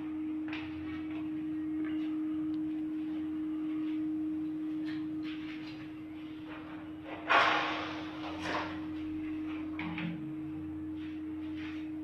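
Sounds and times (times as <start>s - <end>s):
steady hum: 0.0s - 12.0s
brief loud noise: 7.3s - 8.6s.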